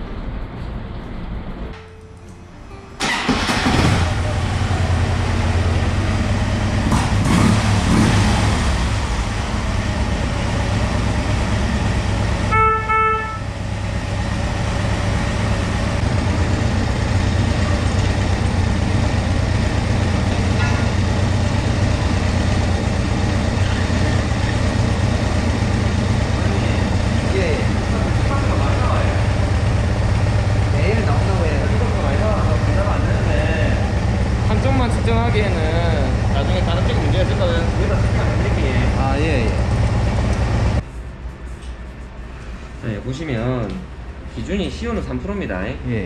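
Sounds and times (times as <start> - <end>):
motorcycle engine idling: 3.6 - 40.8
motorcycle horn beeps: 12.4 - 13.6.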